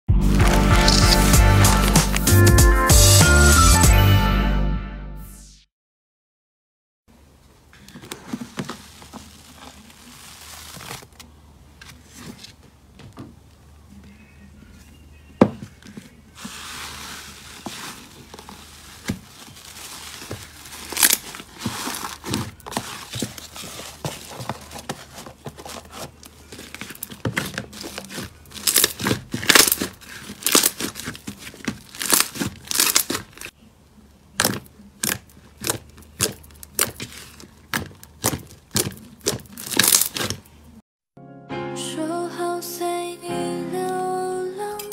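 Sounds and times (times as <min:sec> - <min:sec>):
slime squelching with pops: 0:34.4 - 0:40.4.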